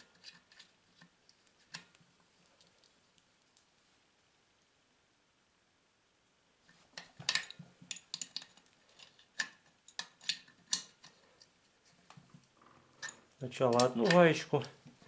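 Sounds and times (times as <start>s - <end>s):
wrench clicking on metal nuts: 13.0s - 14.2s.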